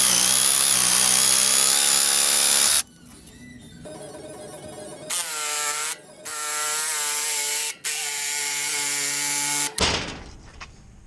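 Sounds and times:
electric jigsaw cutting wood: 0.0 - 2.8.

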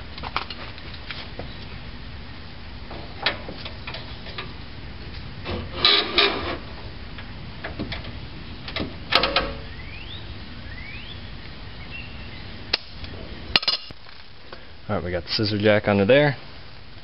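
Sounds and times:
wrench clanking on metal: 13.6 - 13.9.

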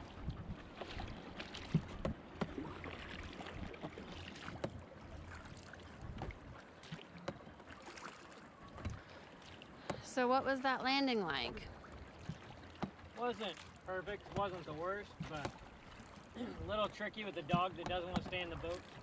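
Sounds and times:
oars splashing: 0.0 - 19.0
rowing knocks: 14.2 - 15.7, 17.4 - 18.4.

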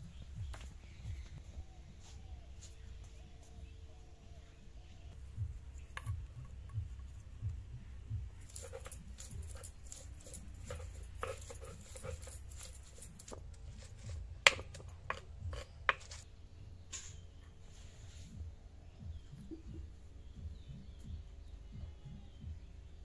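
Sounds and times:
soft low thumps: 0.0 - 3.4, 5.0 - 8.5, 18.3 - 23.0
stone grinding clicks and scrapes: 8.4 - 16.2
sharp stone knocks: 14.4 - 16.2.

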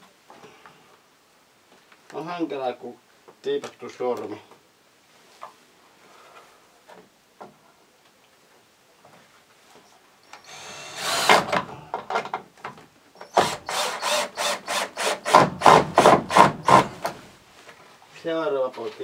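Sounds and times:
power drill driving screws: 10.4 - 11.7, 13.2 - 17.2.

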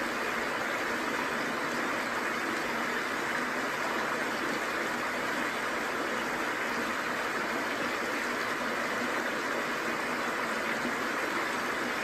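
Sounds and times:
waterfall and stream rushing: 0.0 - 12.0.

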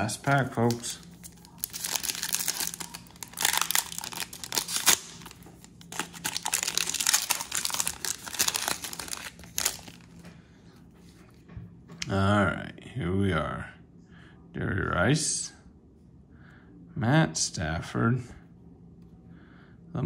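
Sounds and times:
foil wrapper tearing and crinkling: 0.3 - 10.1.

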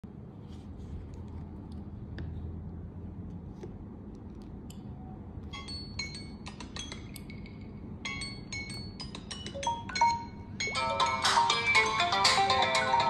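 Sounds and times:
taps on touchscreens: 5.6 - 7.6
smartphone timer alarms chiming: 8.1 - 12.2.

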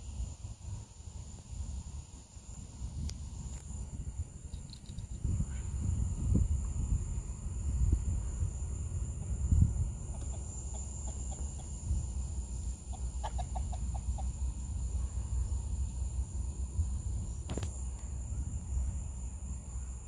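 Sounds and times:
rapid animal calls: 10.1 - 11.8, 12.8 - 14.4.

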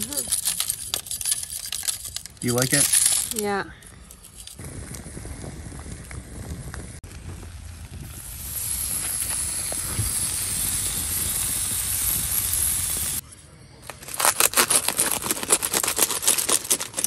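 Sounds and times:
campfire crackling and popping: 4.0 - 13.2
steak sizzling on grill: 7.5 - 13.2.

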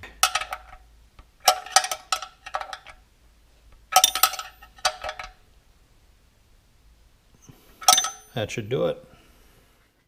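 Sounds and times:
wrench clinking on metal: 1.4 - 3.0, 3.9 - 5.4, 7.8 - 8.4.

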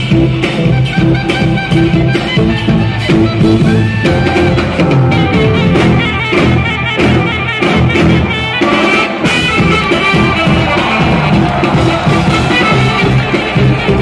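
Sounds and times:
electric bass: 0.0 - 8.6
drums: 0.0 - 14.0
trumpet: 0.0 - 14.0
saxophones: 0.7 - 14.0.

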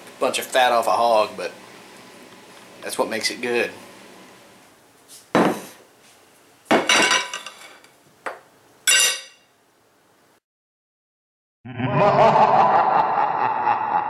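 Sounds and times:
fork clattering on a plate: 8.9 - 9.4.

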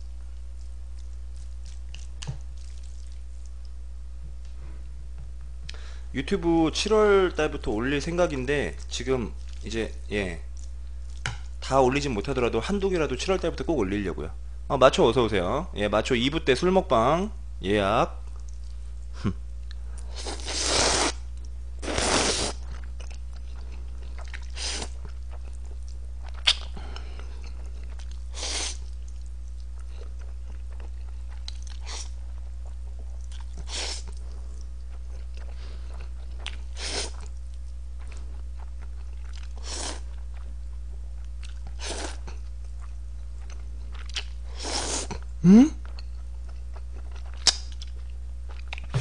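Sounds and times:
chewing: 0.3 - 3.8, 8.7 - 11.6, 18.3 - 20.5, 22.5 - 44.4, 45.0 - 49.0
noodle slurping: 20.2 - 21.2, 21.8 - 22.7
low hum: 48.1 - 49.0.

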